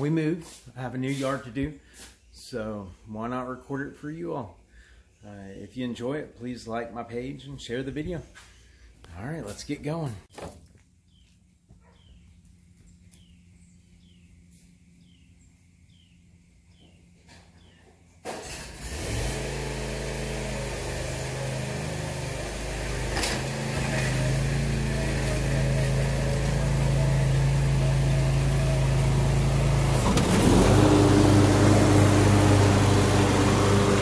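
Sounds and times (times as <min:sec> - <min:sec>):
riding mower engine: 0:18.2 - 0:34.0.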